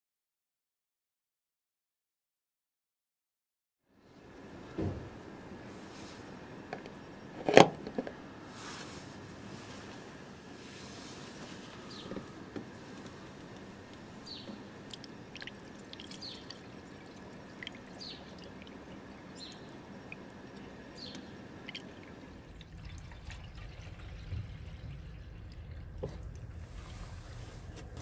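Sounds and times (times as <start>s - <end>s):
liquid pouring from a jug: 14.8s - 28.0s
low rumble: 22.3s - 28.0s.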